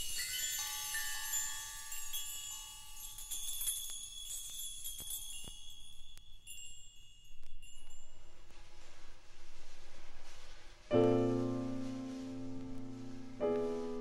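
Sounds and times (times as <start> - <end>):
jazz percussion chimes and bells: 0.0 - 8.8.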